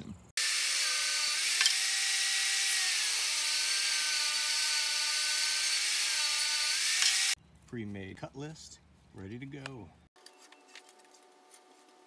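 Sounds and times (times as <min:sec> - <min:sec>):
table saw ripping wood: 0:00.4 - 0:07.4.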